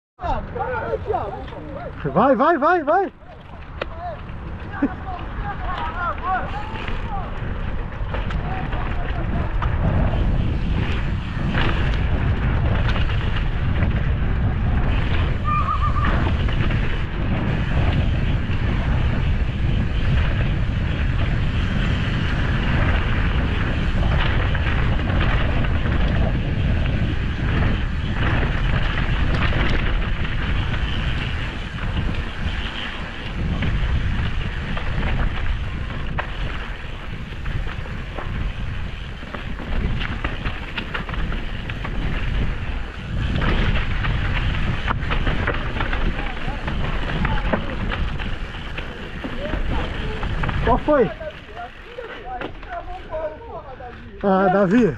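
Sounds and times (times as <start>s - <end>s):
bike rattling over bumps: 0.2s - 54.9s
bike tyres rolling on dirt: 0.2s - 54.9s
wind buffeting microphone: 0.2s - 54.9s.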